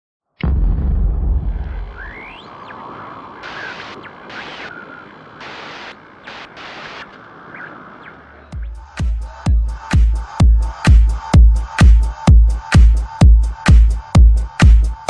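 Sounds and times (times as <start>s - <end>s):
deep boom: 0.4s - 2.5s
harsh digital static bursts: 1.8s - 8.6s
hiss: 2.4s - 8.0s
dance beat with heavy kicks: 8.5s - 15.0s.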